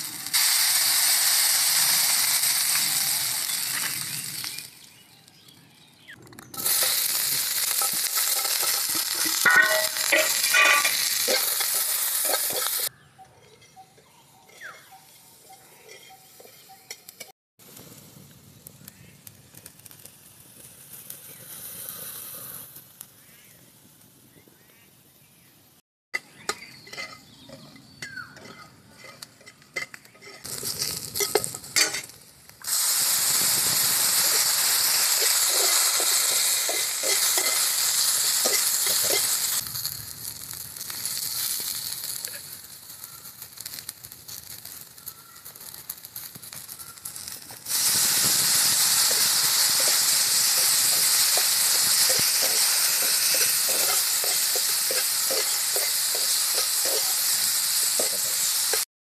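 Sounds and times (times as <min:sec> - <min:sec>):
vegetables sizzling in frying pan: 0:00.0 - 0:05.4, 0:06.6 - 0:12.9, 0:30.1 - 0:58.9
metal spatula scraping pan: 0:07.6 - 0:17.3, 0:26.4 - 0:32.2, 0:35.2 - 0:37.8, 0:38.4 - 0:39.5, 0:50.6 - 0:57.2.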